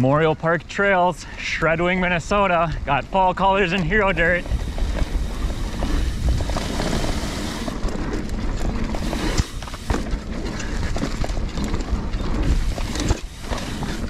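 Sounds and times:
bike tyres on dirt trail: 0.0s - 14.0s
heavy low rumble: 2.0s - 14.0s
bike frame rattling over bumps: 3.4s - 14.0s.

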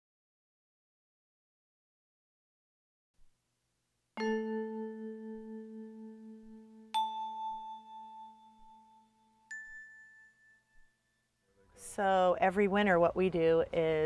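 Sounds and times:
rising bell-like chime notes: 4.2s - 11.4s.

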